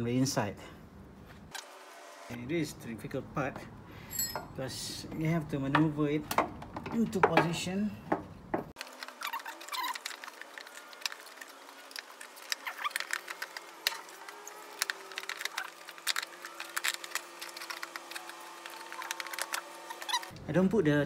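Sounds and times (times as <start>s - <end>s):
hands handling plastic parts: 5.8s - 20.4s.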